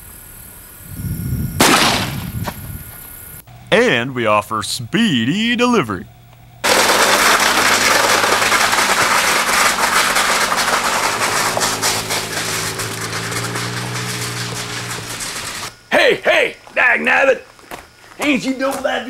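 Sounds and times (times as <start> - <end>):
car engine running: 6.3 - 15.8
object scraping along ground: 6.6 - 15.7
tyres crunching on gravel: 6.6 - 15.7.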